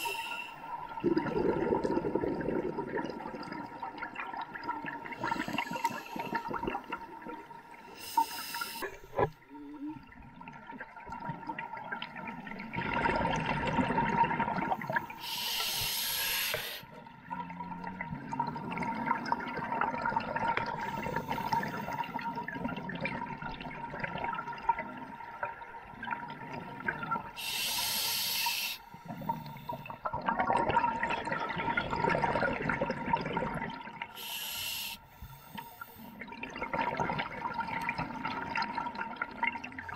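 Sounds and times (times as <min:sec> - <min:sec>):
regulator inhalation hiss: 0:00.0 - 0:00.6, 0:05.2 - 0:06.5, 0:08.0 - 0:09.2, 0:15.1 - 0:16.8, 0:27.4 - 0:29.0, 0:34.2 - 0:36.1
bubbling exhalations: 0:00.9 - 0:07.5, 0:11.2 - 0:23.4.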